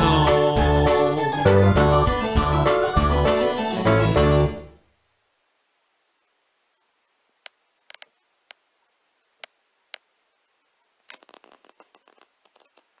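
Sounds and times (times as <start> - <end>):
paper rustling: 11.1 - 13.0.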